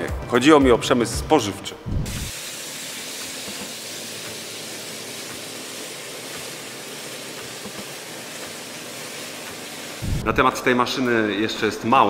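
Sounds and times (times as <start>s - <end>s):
high-pressure water jets hissing: 2.1s - 10.4s.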